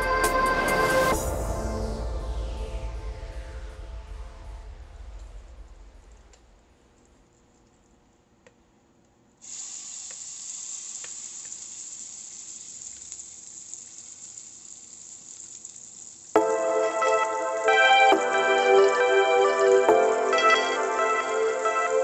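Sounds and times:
background music: 0.0s - 6.2s, 16.4s - 22.0s
paste sizzling in hot oil: 9.4s - 16.4s.

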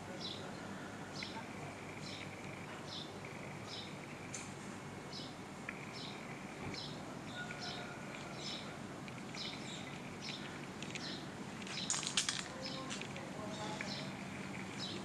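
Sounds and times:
low background hum: 0.0s - 15.0s
small birds chirping: 0.1s - 15.0s
sharp clicks: 5.6s - 6.9s.

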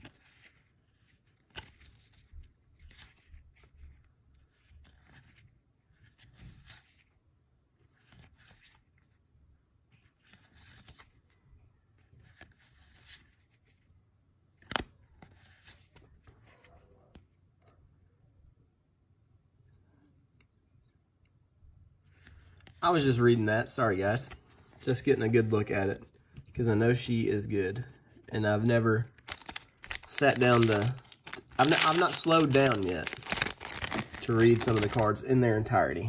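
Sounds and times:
cards scraping and rubbing: 28.2s - 35.2s.

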